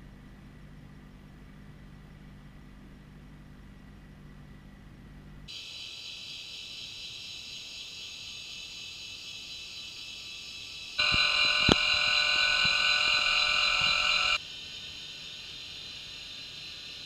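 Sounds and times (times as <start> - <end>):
linear actuator motor whine: 11.0 - 14.4
sharp click: 11.0 - 14.4.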